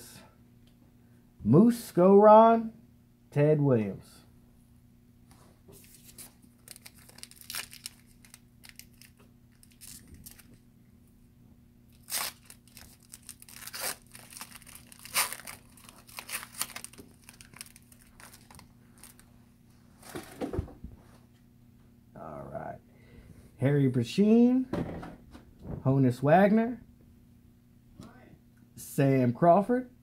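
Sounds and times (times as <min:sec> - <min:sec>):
plastic wrapper tearing and crinkling: 0:05.8 - 0:10.6, 0:11.9 - 0:19.3.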